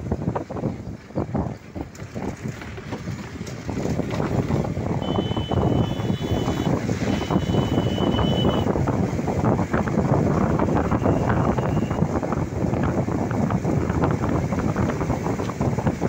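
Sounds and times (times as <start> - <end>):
vehicle rumble: 0.0 - 16.0
wind buffeting microphone: 0.0 - 16.0
high steady tone: 5.0 - 8.7.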